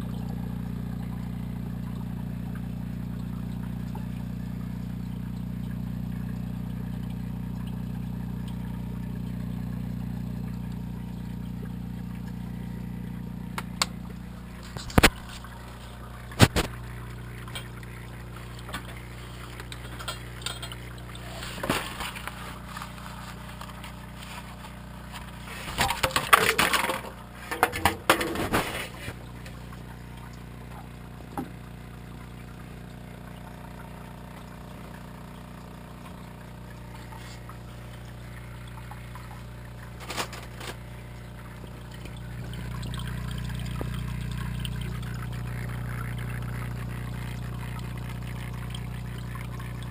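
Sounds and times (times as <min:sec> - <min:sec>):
aquarium equipment humming: 0:00.0 - 0:49.9.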